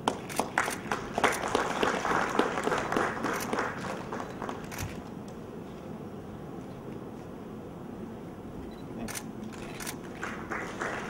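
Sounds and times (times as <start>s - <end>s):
audience applauding: 0.0s - 4.8s, 10.0s - 11.0s.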